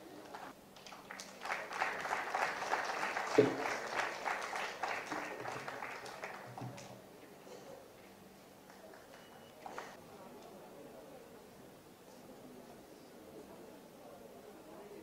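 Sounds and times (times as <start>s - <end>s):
audience applauding: 0.3s - 6.9s.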